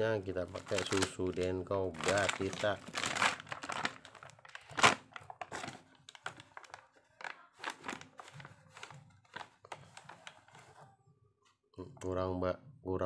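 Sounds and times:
foil pouch crinkling: 0.3s - 10.8s.

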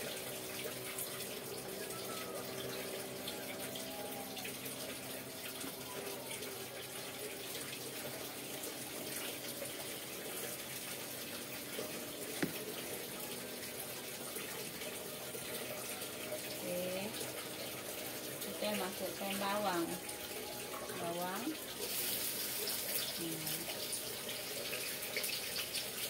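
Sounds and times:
oil hissing in a wok: 21.8s - 26.0s.

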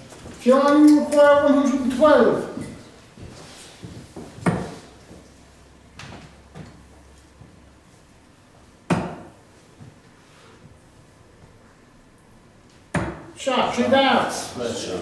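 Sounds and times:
darts thudding into dartboard: 4.4s - 4.8s, 8.9s - 9.4s, 12.9s - 13.3s.

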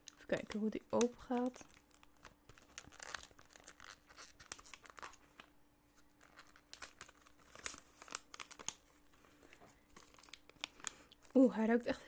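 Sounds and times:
packaging crinkling and tearing: 0.0s - 11.4s.

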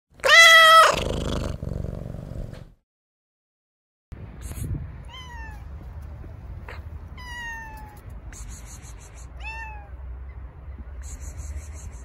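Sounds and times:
cat meowing: 0.2s - 1.2s, 5.0s - 5.7s, 7.1s - 8.1s, 9.4s - 10.0s.

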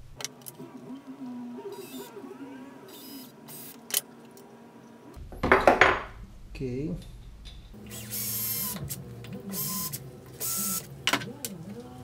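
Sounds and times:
cordless drill motor whine: 1.7s - 3.8s, 7.9s - 10.9s
drill bit hissing through metal: 7.9s - 8.9s.

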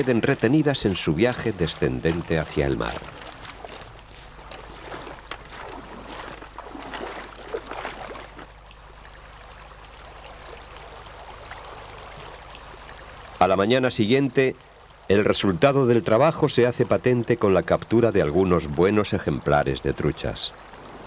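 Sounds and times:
water splashing as someone wades: 0.0s - 13.4s
stream rushing: 0.0s - 16.9s.

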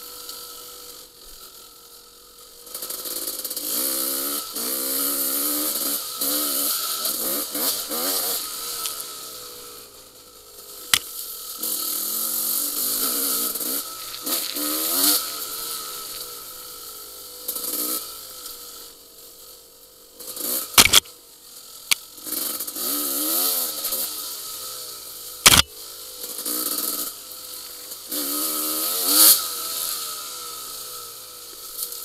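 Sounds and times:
dirt bike engine revving: 3.6s - 9.8s, 11.6s - 18.2s, 20.3s - 21.1s, 22.3s - 25.7s.

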